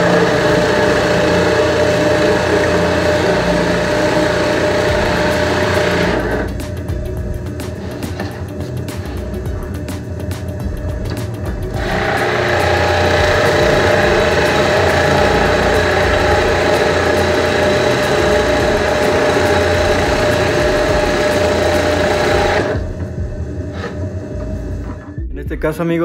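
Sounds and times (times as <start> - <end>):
drill bit cutting wood: 0.0 - 6.6, 11.7 - 23.0
drill press motor hum: 0.0 - 25.2.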